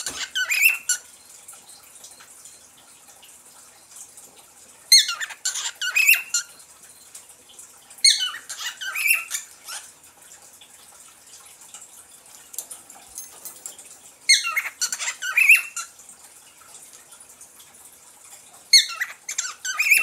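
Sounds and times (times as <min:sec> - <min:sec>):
cockatiel chirping: 0:00.0 - 0:01.0, 0:04.9 - 0:06.4, 0:08.0 - 0:09.5, 0:18.7 - 0:20.0.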